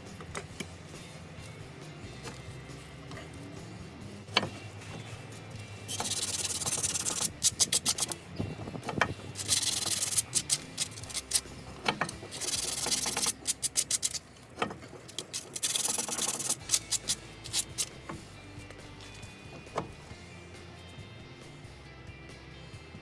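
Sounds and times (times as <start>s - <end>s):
wire brush scrubbing metal: 4.4s - 8.2s, 9.2s - 18.3s.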